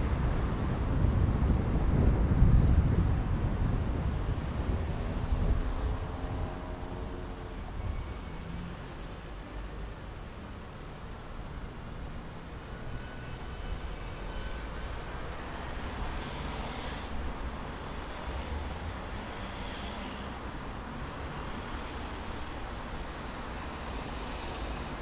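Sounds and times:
cars passing: 0:00.0 - 0:11.4, 0:12.3 - 0:25.0.

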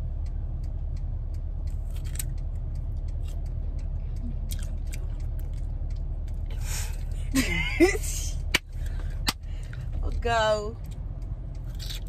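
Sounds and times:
fast light ticking: 0:00.0 - 0:11.7
car engine idling: 0:00.0 - 0:12.0
chewing firm fruit: 0:00.3 - 0:07.2, 0:10.8 - 0:12.0.

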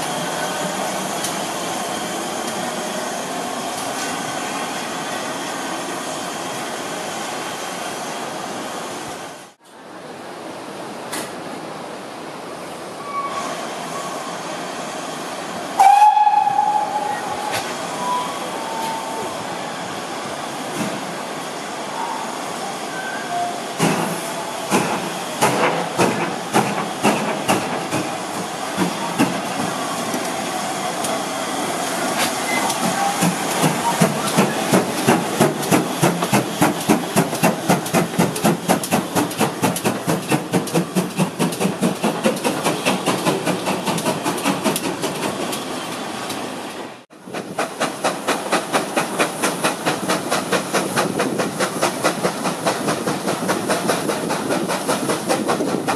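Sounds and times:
rhythmic beat of moving train: 0:15.3 - 0:21.8, 0:23.6 - 0:46.4, 0:47.2 - 0:55.9
steam locomotive exhaust chuffs: 0:22.9 - 0:45.7, 0:47.2 - 0:55.9.

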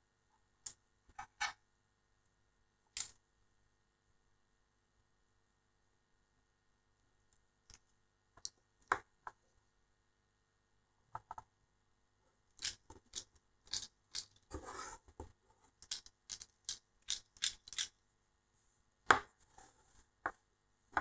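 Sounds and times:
clicks of small parts: 0:02.9 - 0:03.2, 0:12.6 - 0:14.4, 0:15.8 - 0:18.0.

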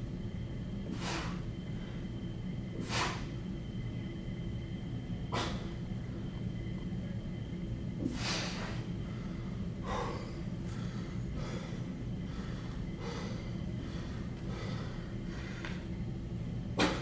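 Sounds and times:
steady low hum: 0:00.0 - 0:17.0
man breathing sharply: 0:00.8 - 0:02.1, 0:02.7 - 0:03.4, 0:05.3 - 0:05.8, 0:08.0 - 0:15.8.

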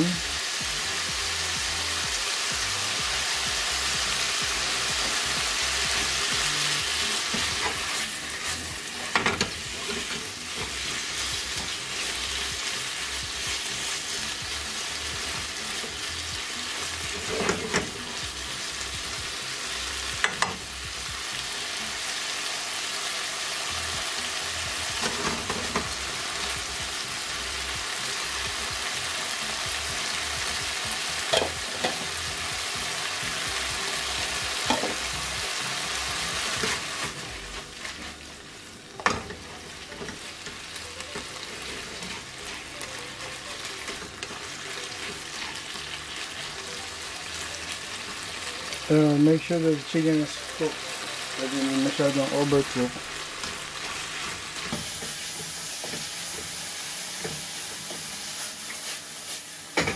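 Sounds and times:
food sizzling in a wok: 0:00.0 - 0:59.9
spatula scraping a pan: 0:41.2 - 0:43.0.

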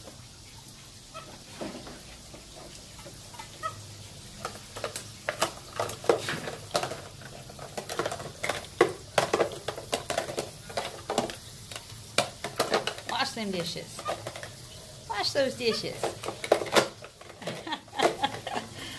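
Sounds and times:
plastic toy dishes clattering: 0:04.4 - 0:18.9.

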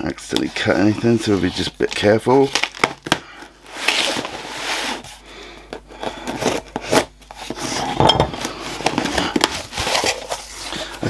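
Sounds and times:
knife cutting packing tape: 0:06.2 - 0:07.7.

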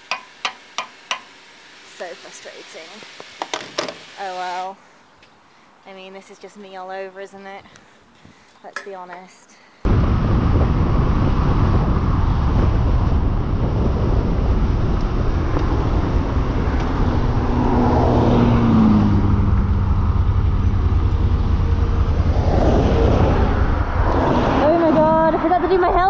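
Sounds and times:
wind rushing over microphone: 0:09.8 - 0:26.0
motorcycle engine drone: 0:09.9 - 0:26.0.

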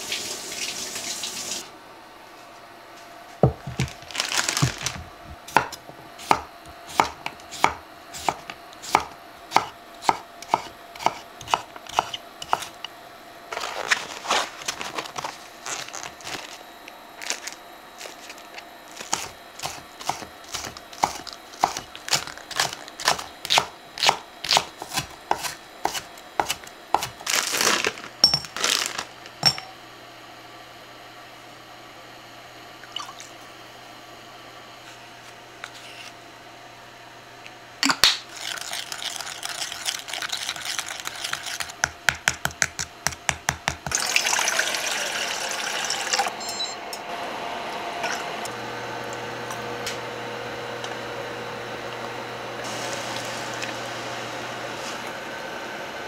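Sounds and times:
knife chopping on wooden board: 0:03.4 - 0:03.9, 0:05.5 - 0:12.8, 0:19.0 - 0:27.2, 0:41.8 - 0:44.0.

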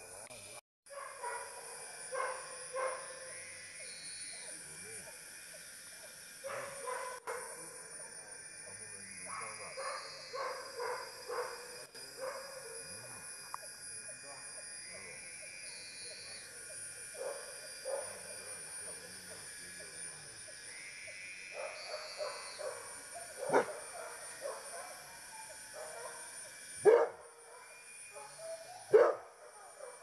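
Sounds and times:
dogs barking: 0:00.9 - 0:03.1, 0:06.4 - 0:07.3, 0:09.3 - 0:11.6, 0:21.6 - 0:25.0, 0:25.8 - 0:26.2, 0:26.8 - 0:29.3.

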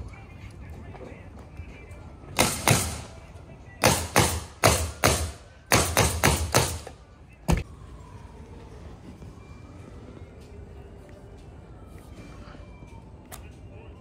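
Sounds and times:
nail gun firing: 0:02.4 - 0:03.1, 0:03.8 - 0:07.0.

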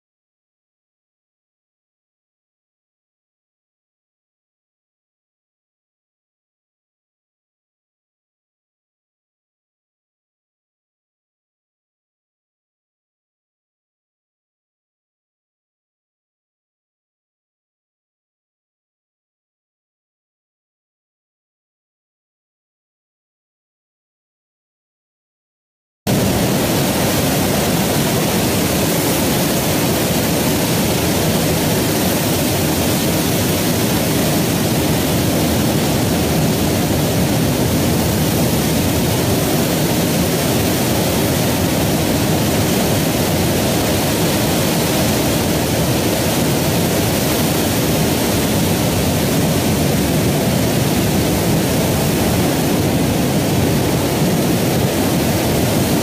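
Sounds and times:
loud static rushing noise: 0:26.1 - 0:56.0.

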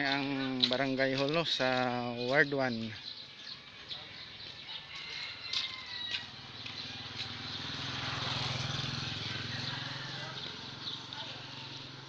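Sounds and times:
quiet street ambience: 0:00.0 - 0:12.0
small motorcycle engine: 0:06.2 - 0:12.0.

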